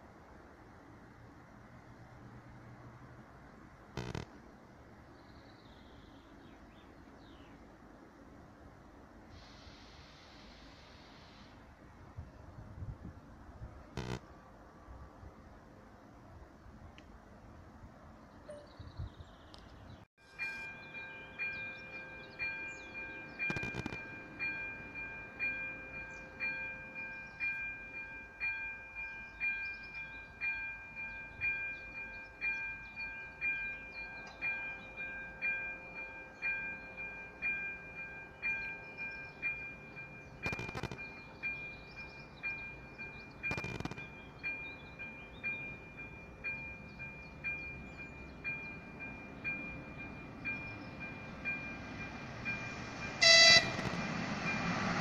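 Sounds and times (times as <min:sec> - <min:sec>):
birds chirping: 0:38.4 - 0:52.2.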